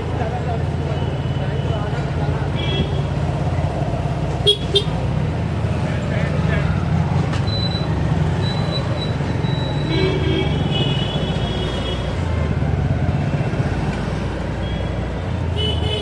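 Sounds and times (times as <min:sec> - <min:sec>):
street traffic: 0:00.0 - 0:16.0
vehicle horn: 0:04.4 - 0:04.9, 0:15.6 - 0:16.0.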